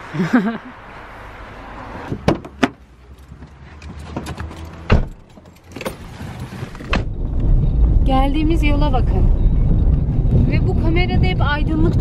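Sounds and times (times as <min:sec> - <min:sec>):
car door thud: 0:02.1 - 0:02.8, 0:04.9 - 0:06.2.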